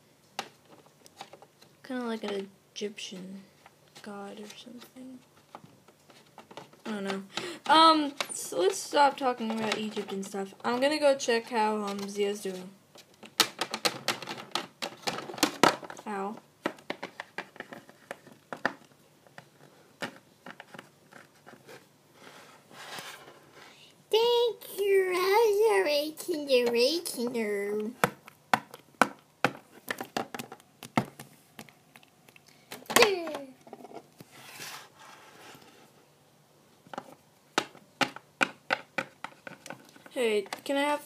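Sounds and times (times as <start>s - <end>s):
plastic toy tapping: 13.2s - 16.0s, 16.6s - 18.9s, 27.9s - 31.7s, 37.0s - 40.6s
soft scraping rustle: 20.7s - 23.9s, 33.7s - 36.1s.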